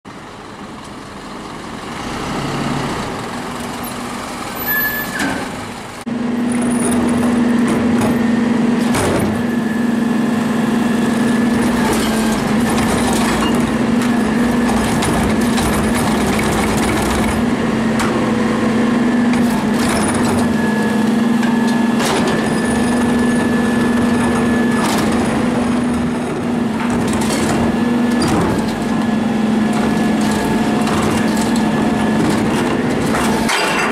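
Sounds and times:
garbage truck engine humming: 0.1s - 33.9s
carts banging: 29.6s - 33.9s.

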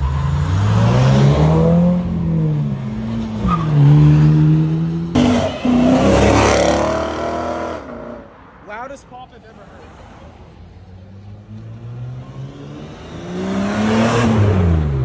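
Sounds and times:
car engine revving: 0.0s - 8.3s, 11.2s - 15.0s
car accelerating hard: 11.8s - 15.0s.

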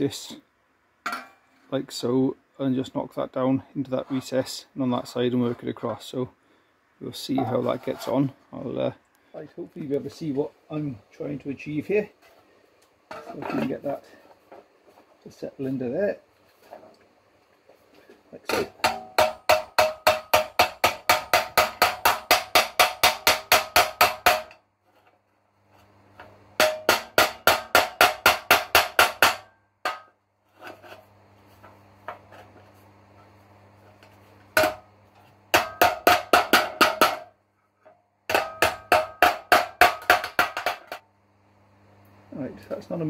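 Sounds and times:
low steady hum: 0.0s - 43.0s
hammer blows on sheet steel: 18.8s - 24.6s, 26.6s - 30.1s.

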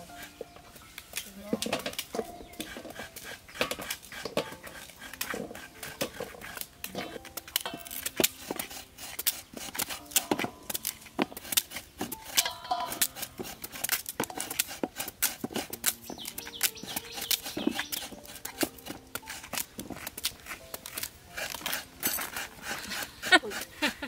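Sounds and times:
cleaver scraping skin: 1.8s - 24.0s.

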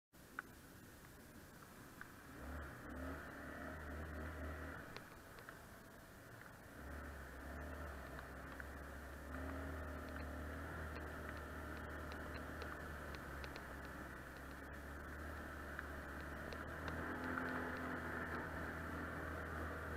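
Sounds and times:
atv engine rumbling: 0.9s - 19.9s
faint ticks and rattles: 4.7s - 19.9s.

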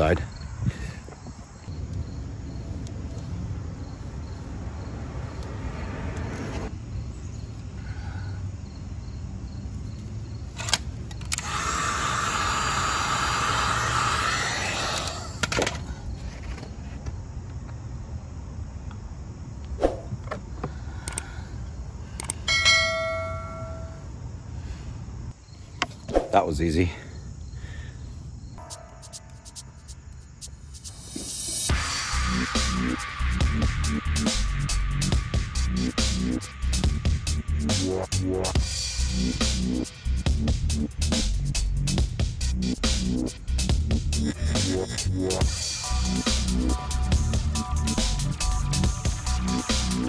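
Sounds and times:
heat gun blowing: 11.3s - 15.3s
short bell-like chime: 22.5s - 24.0s.

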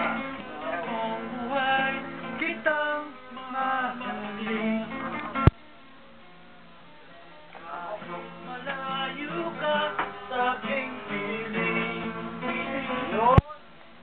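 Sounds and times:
acoustic guitar music: 0.0s - 14.0s.

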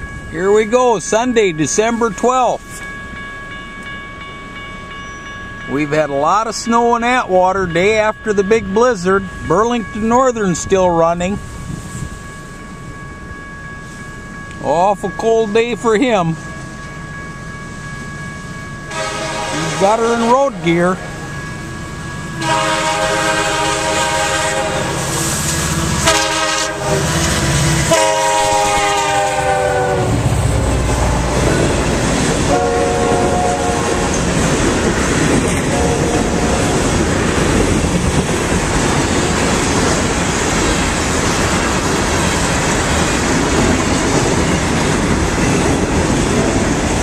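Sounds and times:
train wheels rolling on rails: 11.4s - 47.0s
locomotive air horn blasts: 18.9s - 20.8s, 22.4s - 25.2s, 25.9s - 27.2s, 27.8s - 30.3s, 32.4s - 34.2s, 35.7s - 36.8s.

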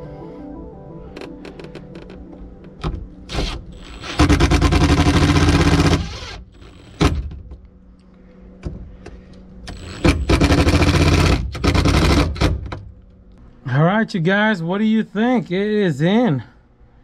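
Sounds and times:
cordless drill driving screws: 3.3s - 7.1s, 9.7s - 12.5s.

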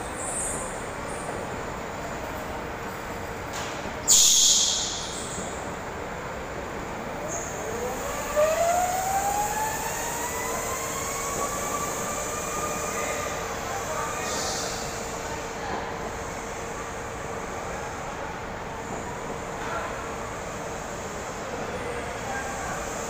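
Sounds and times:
brief loud hiss: 4.0s - 5.3s.

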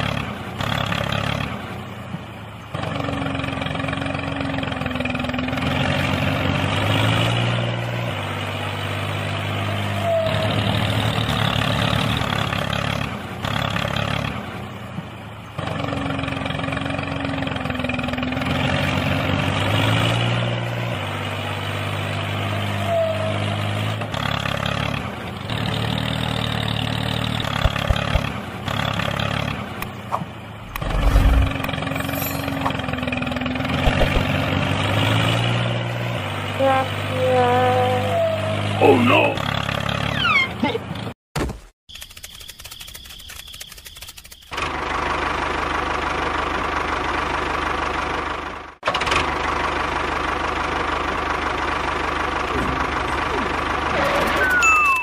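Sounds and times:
tractor engine running: 23.6s - 41.2s, 41.9s - 55.0s.

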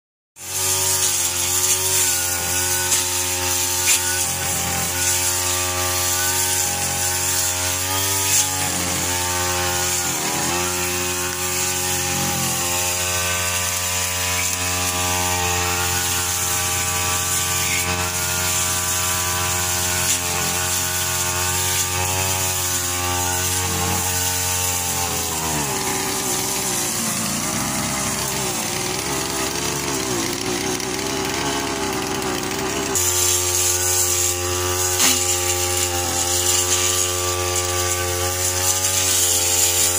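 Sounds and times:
brush cutter engine: 0.4s - 39.9s.

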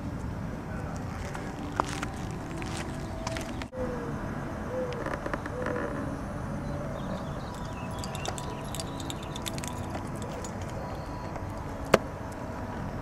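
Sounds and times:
outdoor background noise: 0.0s - 13.0s
dog tags jingling: 7.4s - 11.9s.

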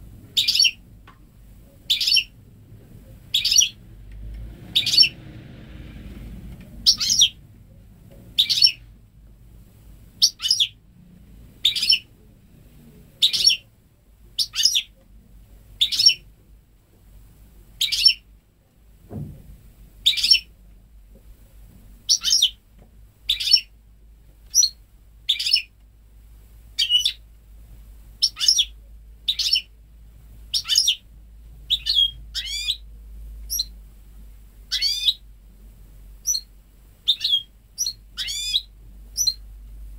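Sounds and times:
bird chirping and twittering: 0.4s - 0.8s, 1.8s - 2.4s, 3.2s - 3.8s, 4.6s - 5.2s, 6.8s - 7.4s, 8.4s - 8.8s, 10.2s - 10.8s, 11.6s - 12.1s, 13.2s - 13.7s, 14.4s - 14.9s, 15.8s - 16.2s, 17.8s - 18.2s, 20.0s - 20.5s, 22.1s - 22.6s, 23.3s - 23.7s, 24.5s - 25.7s, 26.8s - 27.2s, 28.2s - 29.8s, 30.5s - 31.0s, 31.7s - 32.8s, 33.5s - 33.7s, 34.7s - 35.2s, 36.2s - 36.5s, 37.1s - 39.4s.

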